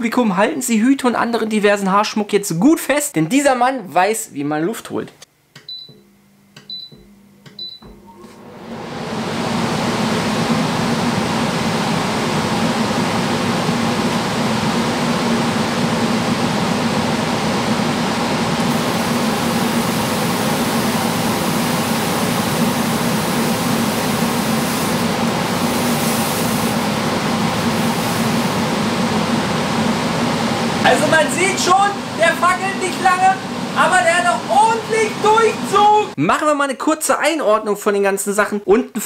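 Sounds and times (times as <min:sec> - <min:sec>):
air filter fan rushing: 0:08.2 - 0:36.2
high hiss: 0:18.7 - 0:28.8.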